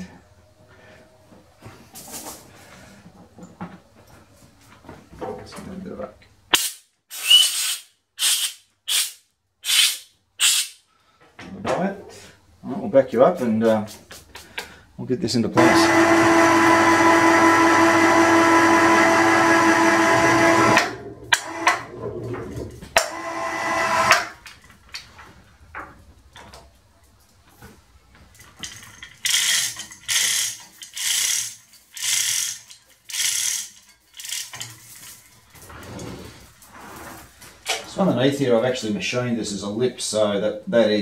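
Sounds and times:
short bursts of noise: 0:06.5 - 0:10.9
chain hoist motor whining: 0:15.6 - 0:22.0, 0:28.6 - 0:35.6.

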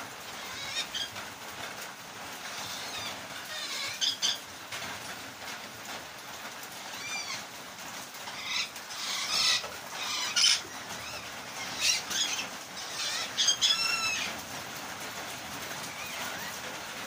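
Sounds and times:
rain hissing: 0:00.0 - 0:17.0
parrots squawking: 0:00.3 - 0:01.2, 0:02.4 - 0:04.4, 0:06.8 - 0:07.5, 0:08.2 - 0:14.4, 0:15.8 - 0:16.8.

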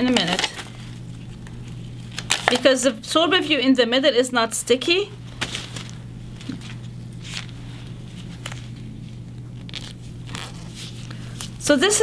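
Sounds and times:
scratchy film rustles: 0:00.0 - 0:02.8, 0:05.2 - 0:12.0
steady low hum: 0:00.0 - 0:12.0.

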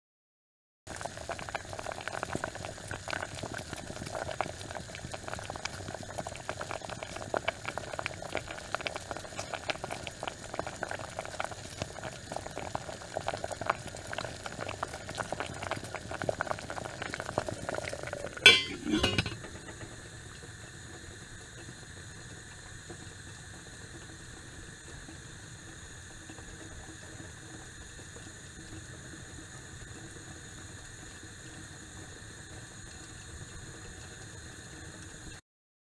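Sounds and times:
water boiling hard: 0:00.9 - 0:35.4
metal clink: 0:18.5 - 0:19.5.

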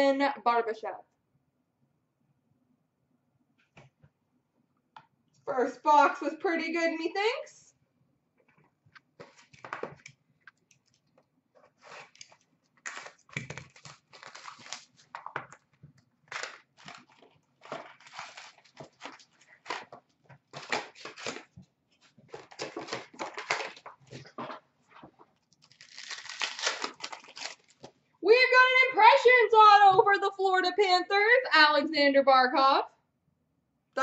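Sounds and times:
wrappers crinkling and tearing: 0:10.8 - 0:15.6, 0:16.2 - 0:21.6, 0:22.3 - 0:24.5, 0:25.4 - 0:27.9.

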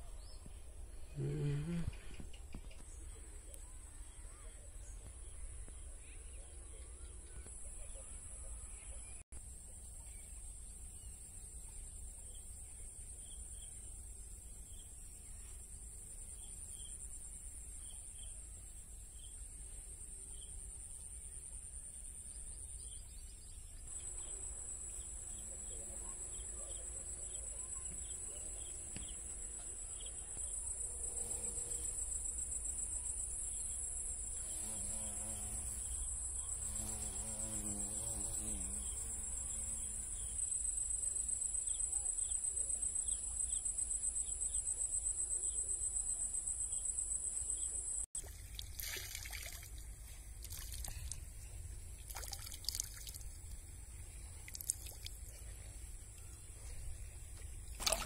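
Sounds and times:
insects buzzing: 0:01.0 - 0:03.1, 0:20.1 - 0:58.0.

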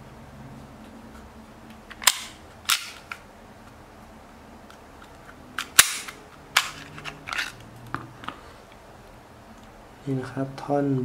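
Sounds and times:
pistol slide clicking and clacking: 0:01.9 - 0:03.2, 0:05.6 - 0:07.6.

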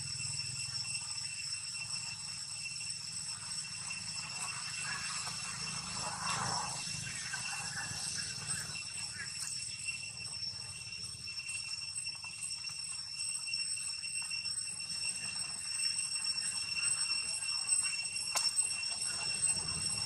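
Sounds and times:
high-pitched ringing drone: 0:00.0 - 0:20.0.

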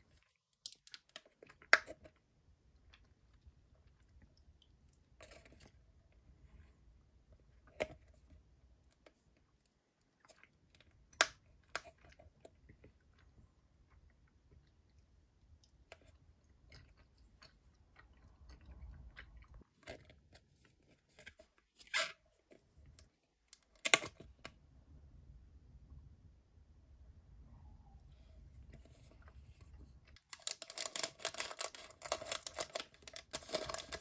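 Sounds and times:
plastic blister tray crackling: 0:30.1 - 0:34.0.

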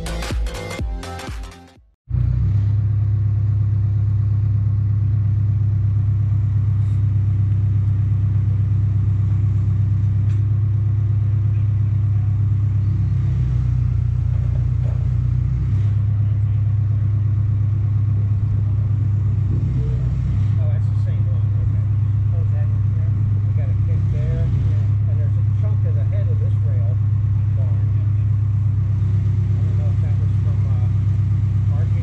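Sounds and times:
large engine humming: 0:02.1 - 0:32.0.

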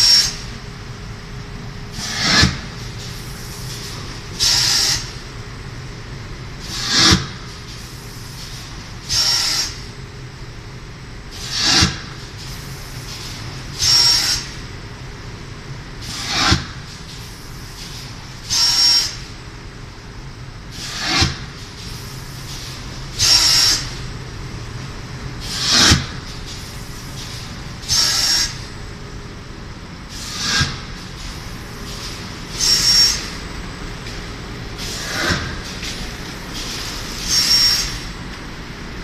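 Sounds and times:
machine low hum: 0:28.5 - 0:39.0
hissing air bursts: 0:30.1 - 0:33.4, 0:34.7 - 0:38.1.

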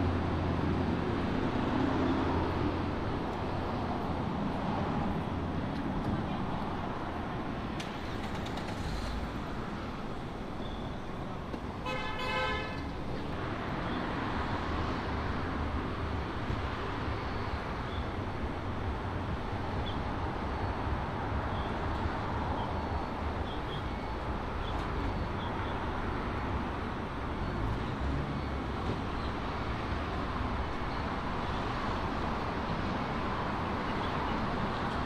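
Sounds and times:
city street traffic: 0:00.0 - 0:35.0
vehicle horn honking: 0:11.8 - 0:12.8.

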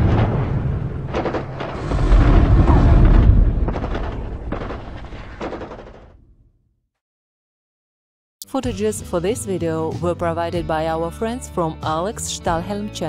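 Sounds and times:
deep rumbling booms: 0:00.0 - 0:06.4
sharp cracks: 0:00.0 - 0:06.4.

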